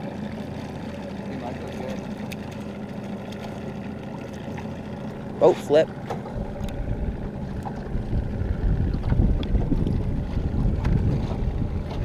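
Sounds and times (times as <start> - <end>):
wind buffeting microphone: 6.3 - 12.0.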